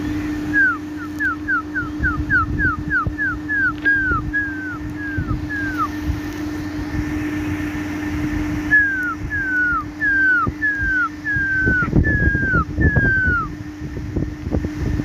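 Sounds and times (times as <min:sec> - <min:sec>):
steady low hum: 0:00.0 - 0:15.0
short high falling calls: 0:00.4 - 0:06.1, 0:08.6 - 0:13.5.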